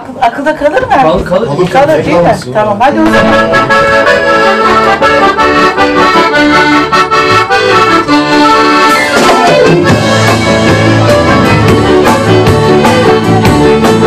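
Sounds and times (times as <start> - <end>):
band playing instrumental: 2.8 - 14.0
bass notes: 2.9 - 14.0.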